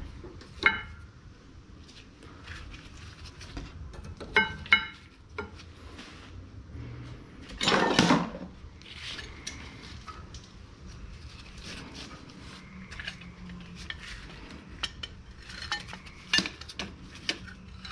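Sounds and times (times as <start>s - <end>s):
metal parts clattering: 7.5s - 8.4s, 12.9s - 17.9s.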